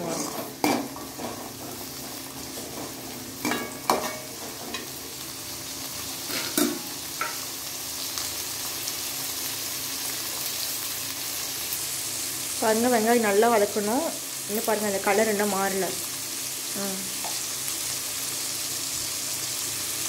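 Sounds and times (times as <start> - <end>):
shallots and garlic sizzling in oil: 0.0 - 20.0
ladle scraping and knocking pan: 0.2 - 4.9.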